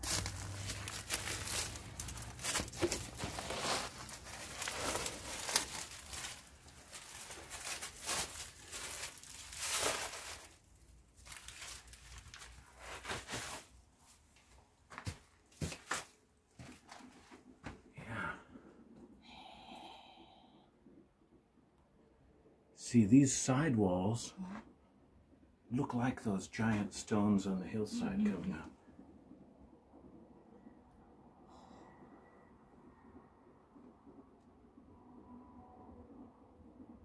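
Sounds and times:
footsteps crunching on dry leaves: 0.0 - 13.7
rustling: 0.0 - 17.8.

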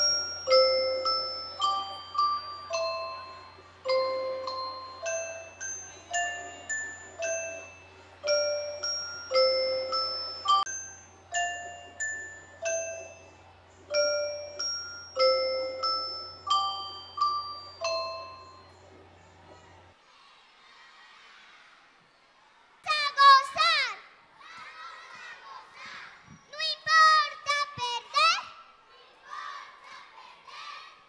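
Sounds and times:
glockenspiel melody: 0.0 - 19.6.

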